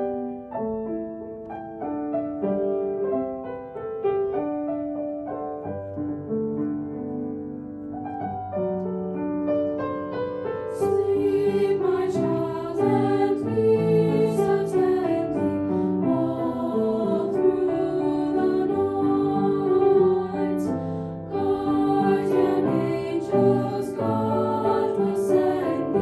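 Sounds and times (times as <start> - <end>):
piano accompaniment: 0.0 - 26.0
girls singing in parts: 10.8 - 26.0.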